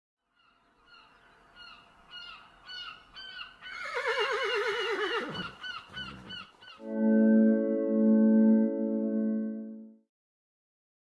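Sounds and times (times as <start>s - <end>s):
horse whinnying: 3.7s - 6.5s.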